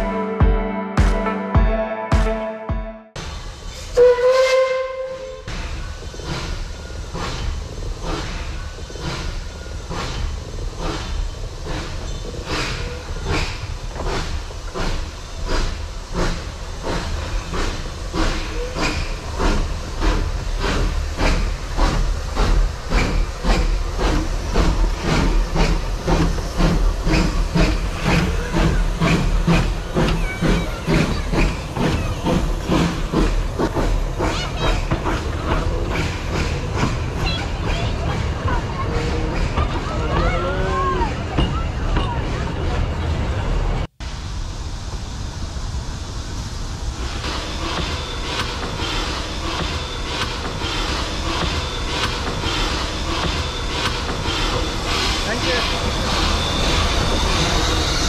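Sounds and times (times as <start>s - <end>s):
steam hissing: 3.2s - 41.6s, 44.0s - 58.0s
steam locomotive chuffing: 3.2s - 58.0s
steam whistle: 3.9s - 5.4s.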